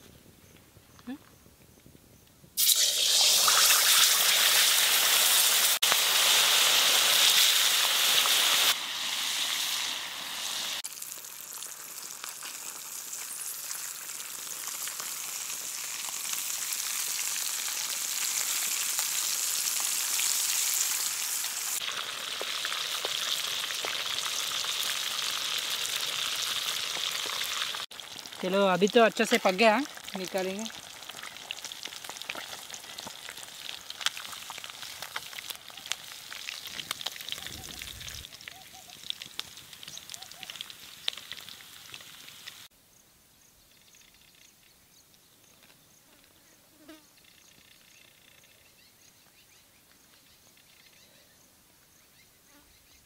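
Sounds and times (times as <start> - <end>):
fish sizzling in hot oil: 2.6 - 42.7.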